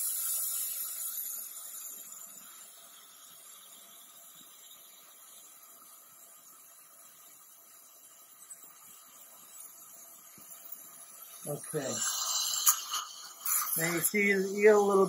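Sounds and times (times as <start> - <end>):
dental drill hiss: 0.0 - 5.6, 8.8 - 15.0
faint suction hiss: 0.0 - 15.0.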